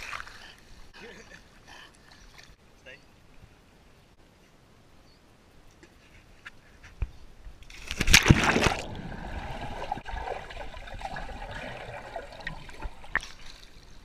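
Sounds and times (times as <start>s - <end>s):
body splashing into pool: 7.7s - 13.6s.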